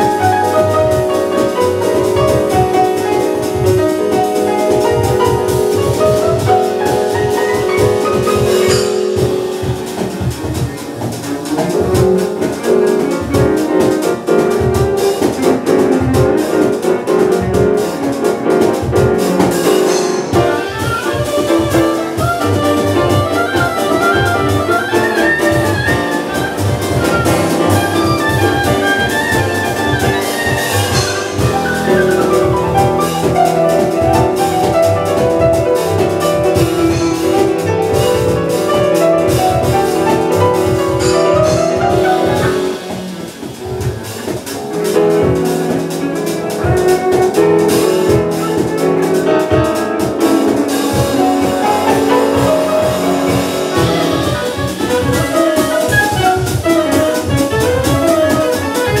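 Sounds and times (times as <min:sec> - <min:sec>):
percussion: 0:00.0 - 0:59.0
piano: 0:00.0 - 0:59.0
upright double bass: 0:00.0 - 0:59.0
oboe melody: 0:19.3 - 0:59.0.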